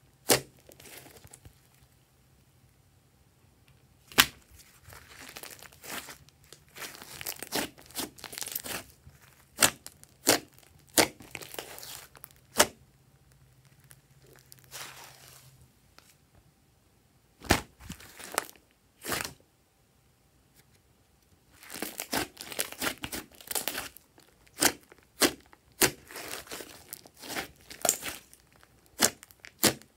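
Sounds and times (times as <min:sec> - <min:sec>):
slime squelching and popping: 0:00.2 - 0:01.6, 0:04.1 - 0:15.0, 0:21.6 - 0:29.9.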